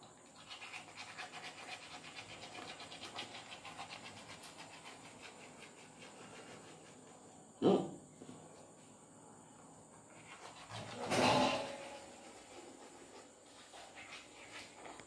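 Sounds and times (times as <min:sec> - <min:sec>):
toothbrush scrubbing teeth: 0:00.0 - 0:07.2, 0:10.1 - 0:11.2.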